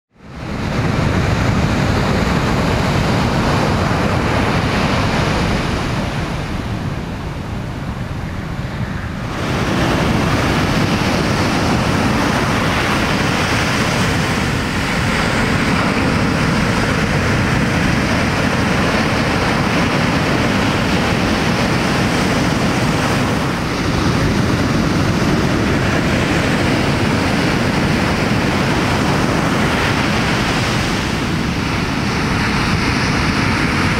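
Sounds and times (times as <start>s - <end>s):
waves breaking on a reef: 0.2s - 33.9s
wind buffeting microphone: 0.2s - 33.9s.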